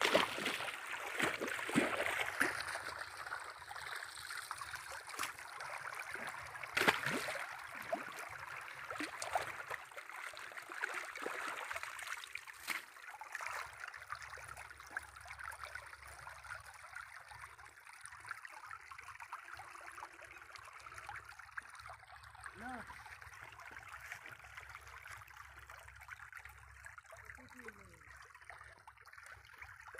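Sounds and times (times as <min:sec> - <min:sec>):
knocks and splashes: 0:00.0 - 0:03.3, 0:05.0 - 0:09.8, 0:12.5 - 0:13.7
water rushing and gurgling: 0:00.0 - 0:10.0.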